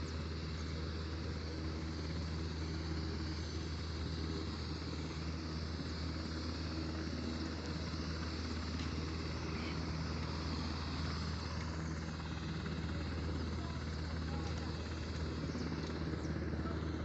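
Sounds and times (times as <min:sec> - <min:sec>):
aircraft flying overhead: 0:00.0 - 0:17.0.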